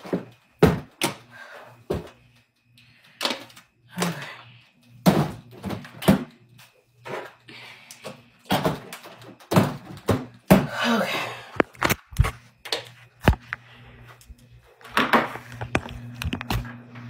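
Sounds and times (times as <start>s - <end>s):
phone handling clicks and rustles: 14.2s - 16.7s.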